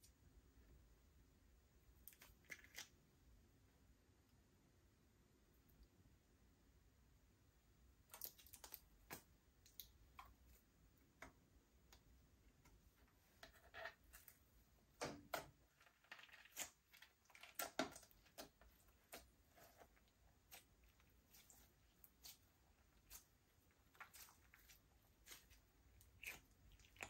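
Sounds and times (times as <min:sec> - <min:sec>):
slime sticky squishes: 0:02.0 - 0:03.0, 0:08.0 - 0:13.1, 0:15.0 - 0:27.0.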